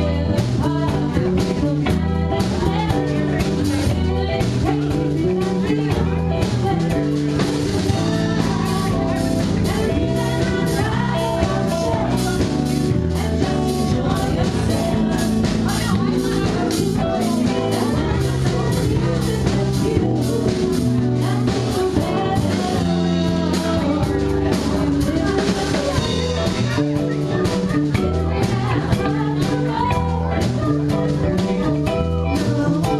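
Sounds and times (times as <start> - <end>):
live band playing: 0.0 - 32.9
woman singing: 0.0 - 32.9.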